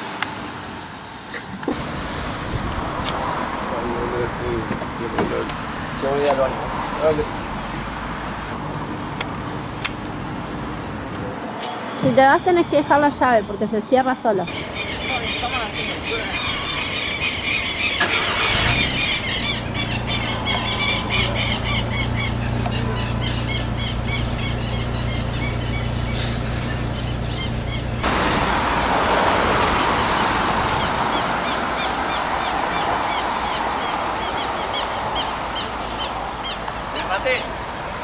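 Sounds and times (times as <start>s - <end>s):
broad hiss: 1.3s - 4.4s
birds chirping and squealing: 10.6s - 28.2s, 29.6s - 38.0s.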